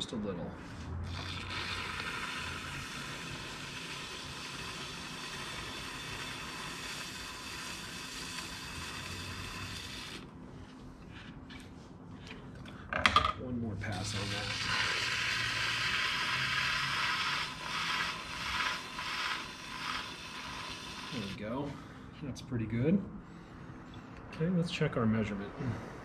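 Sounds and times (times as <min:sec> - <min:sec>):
pottery wheel motor hum: 0:00.2 - 0:12.6, 0:13.5 - 0:22.0.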